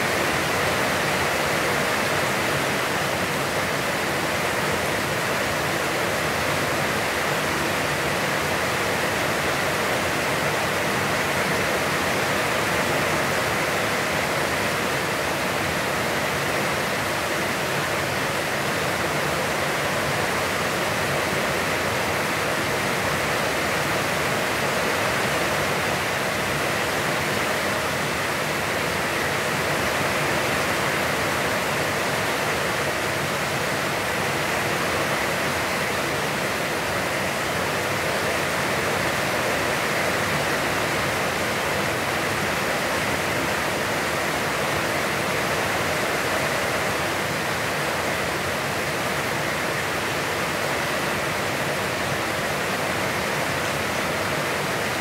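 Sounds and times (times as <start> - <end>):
heavy rain falling: 0.0 - 55.0.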